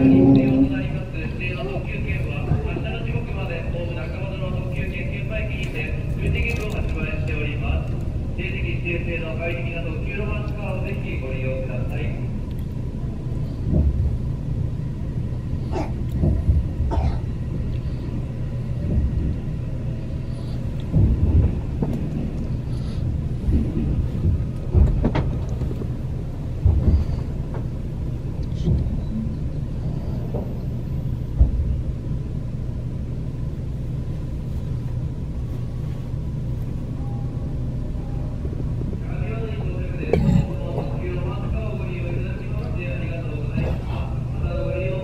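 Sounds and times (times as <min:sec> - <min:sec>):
steady low hum: 0:00.0 - 0:45.0
knocks and thumps: 0:13.7 - 0:14.2, 0:16.2 - 0:17.0, 0:20.9 - 0:22.4, 0:23.4 - 0:25.9.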